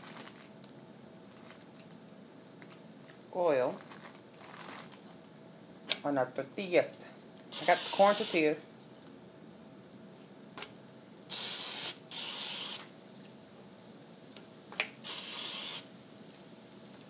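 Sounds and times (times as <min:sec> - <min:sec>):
aerosol spray hissing: 0:07.5 - 0:08.5, 0:11.3 - 0:12.9, 0:15.0 - 0:15.9.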